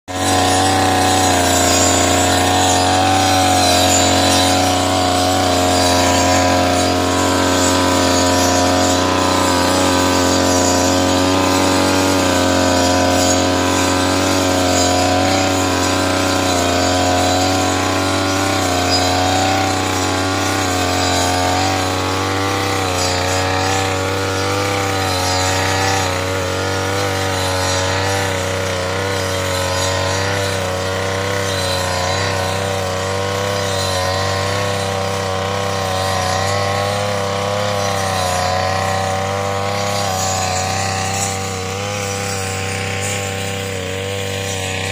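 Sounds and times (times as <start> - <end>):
brush cutter engine running: 0.0 - 44.9.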